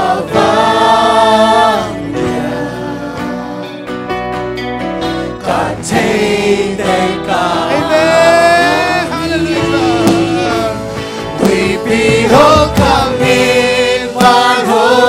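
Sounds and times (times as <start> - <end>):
backup singers: 0.0 - 3.9, 5.3 - 15.0
band playing praise song: 0.0 - 15.0
man singing lead: 7.2 - 14.7.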